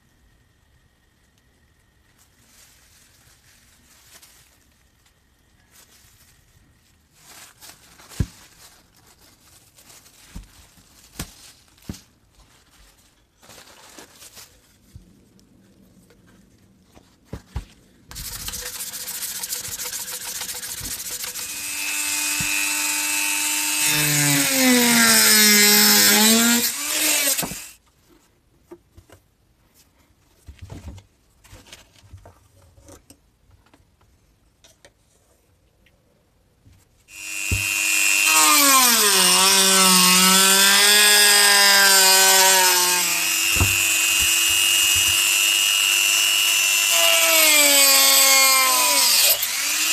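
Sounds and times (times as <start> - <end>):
rotary tool cutting plastic sheet: 18.1 - 27.8, 37.1 - 49.9.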